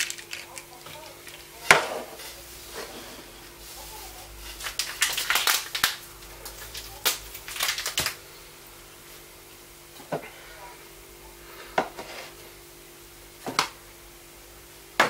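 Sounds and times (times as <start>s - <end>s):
plastic containers clicking: 0.0s - 1.5s
rustling scrapes: 1.1s - 5.0s, 11.9s - 12.5s.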